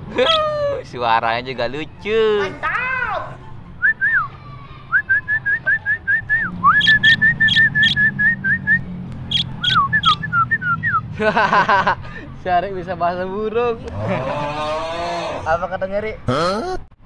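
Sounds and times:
person whistling bird-like chirps: 4.9s - 11.1s.

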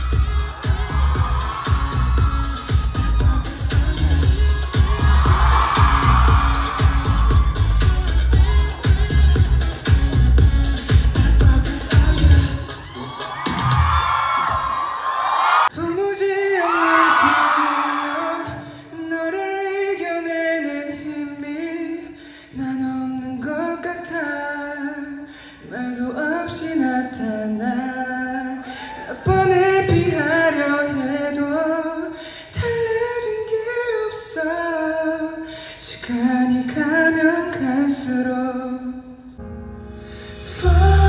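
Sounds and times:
man singing into a microphone: 10.9s - 12.8s, 15.7s - 39.4s, 40.3s - 41.0s.

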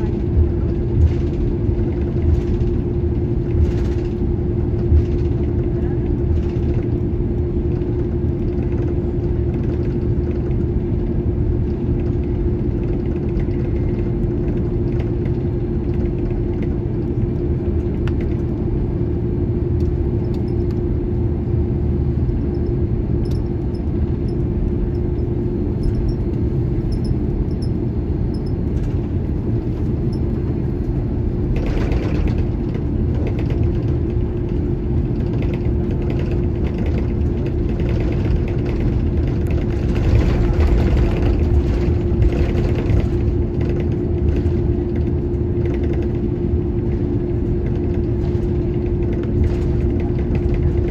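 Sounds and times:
jet engines low rumble: 0.0s - 50.9s
wheels rumbling over taxiway: 0.0s - 50.9s.

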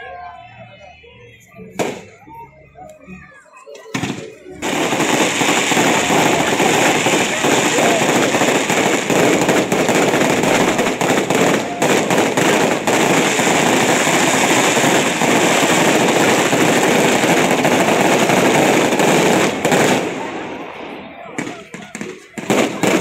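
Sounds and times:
fireworks crackling and banging: 1.7s - 23.0s.

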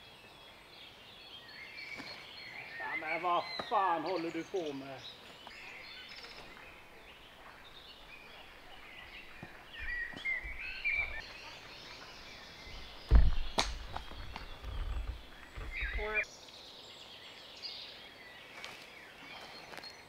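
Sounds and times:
songbirds chirping and singing: 0.0s - 20.0s
loud thump: 13.1s - 14.1s.

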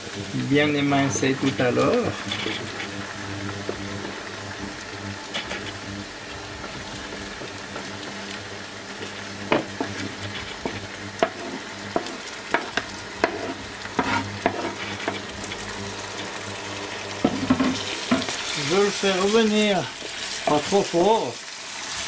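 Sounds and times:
livers sizzling in frying pan: 0.0s - 22.0s
spatula scraping cutting board: 1.3s - 3.0s, 9.5s - 15.6s
spatula knocking on board and pan: 9.5s - 15.2s, 17.2s - 18.3s.

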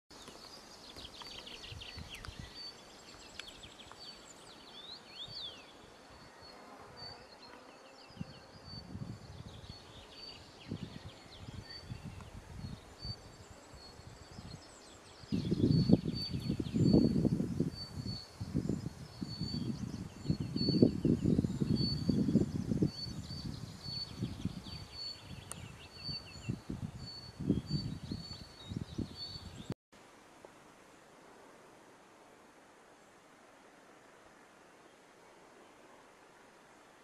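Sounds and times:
faint hiss: 30.0s - 37.0s.

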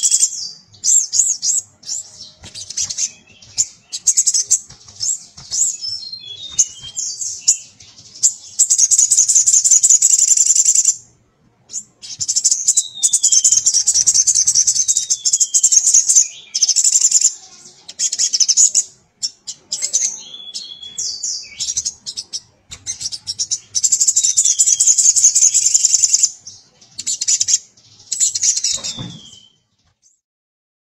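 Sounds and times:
bird rattling trills: 0.9s - 11.0s
bird whistled notes: 12.0s - 17.2s, 19.5s - 26.3s, 27.0s - 29.7s.

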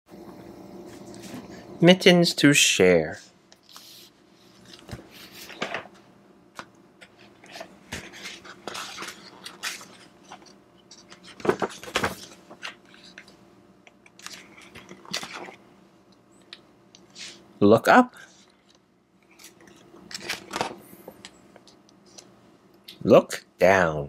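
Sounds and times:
book pages rustling and turning: 3.6s - 6.0s, 6.6s - 13.4s, 14.0s - 15.6s, 18.3s - 22.3s.

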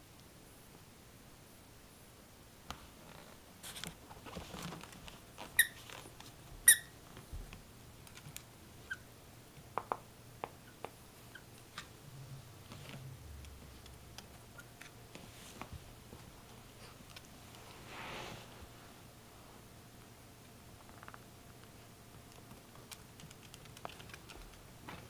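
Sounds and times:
squeaky dog toy squeaks: 5.6s - 5.8s, 6.6s - 7.0s.

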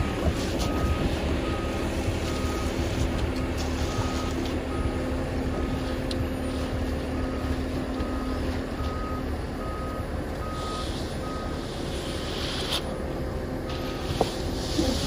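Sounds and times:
reversing alarm beeping: 0.0s - 12.3s, 13.6s - 14.2s
diesel engine running: 0.0s - 15.0s
hiss: 10.6s - 12.9s, 13.7s - 15.0s.

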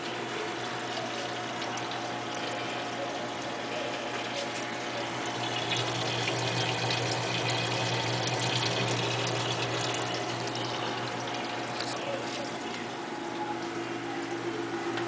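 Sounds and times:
pump hum: 0.0s - 15.0s
water pouring and splashing: 5.3s - 11.8s.

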